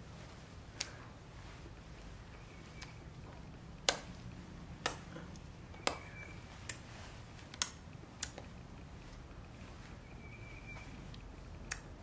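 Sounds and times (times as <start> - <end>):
low steady hum: 0.0 - 12.0
sharp short clicks: 11.6 - 12.0.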